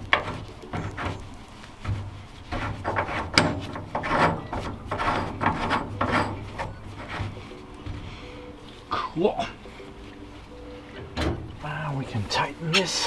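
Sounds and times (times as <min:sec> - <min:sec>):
metal pipe rubbing and scraping: 0:00.0 - 0:13.0.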